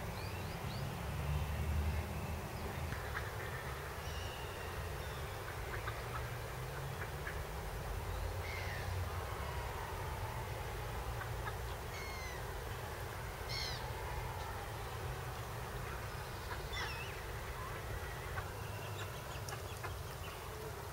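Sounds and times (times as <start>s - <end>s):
falling bird calls: 11.2s - 12.6s, 13.4s - 14.7s, 15.8s - 20.6s.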